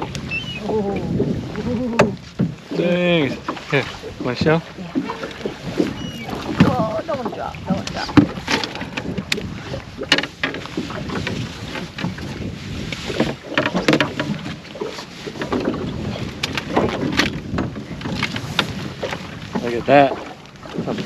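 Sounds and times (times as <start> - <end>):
water slapping boat hull: 0.0 - 21.0
wind on microphone: 0.0 - 21.0
fishing gear clicks and knocks: 5.1 - 12.2, 13.1 - 19.7.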